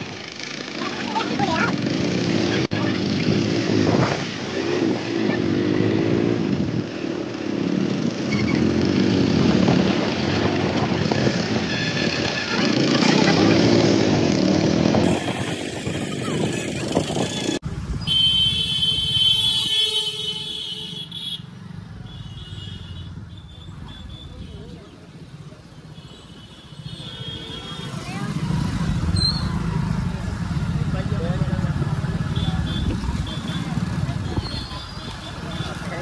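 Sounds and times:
motorcycle engine running: 27.7s - 36.0s.

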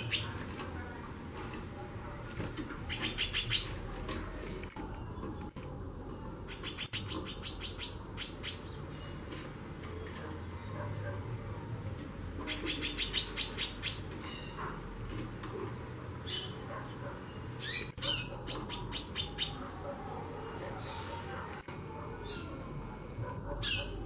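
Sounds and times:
bird rapid chattering call: 2.9s - 3.8s, 6.5s - 8.8s, 12.4s - 14.0s, 17.6s - 19.6s.

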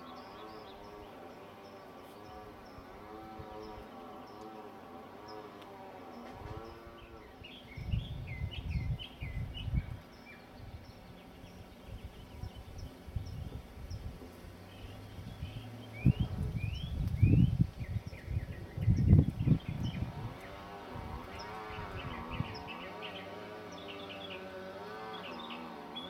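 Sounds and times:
small bird chirping: 5.2s - 26.0s
low rumbles on microphone: 6.3s - 22.8s
flying insect buzzing: 18.9s - 26.0s.

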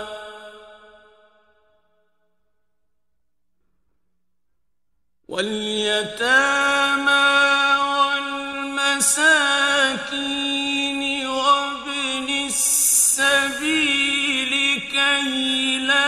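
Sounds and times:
man chanting recitation: 0.0s - 0.8s, 5.3s - 16.0s.

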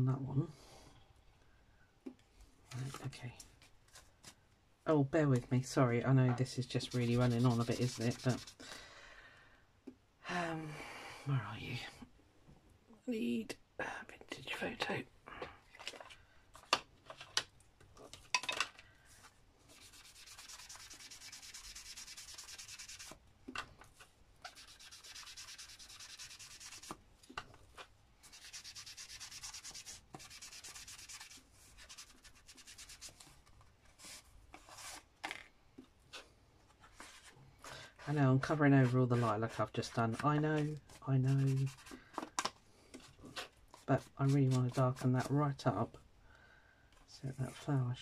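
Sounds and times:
rubbing ink onto paper: 6.8s - 8.6s, 19.7s - 23.2s, 24.5s - 27.0s, 28.2s - 33.2s.

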